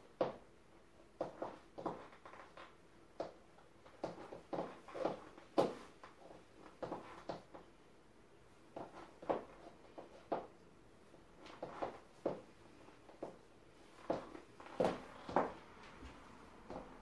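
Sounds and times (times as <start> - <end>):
heels clicking on laminate floor: 14.0 - 17.0.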